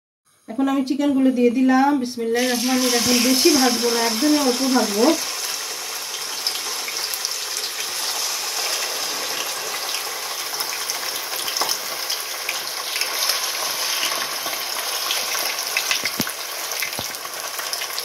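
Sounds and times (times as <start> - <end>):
chicken sizzling in oil: 2.4 - 18.0.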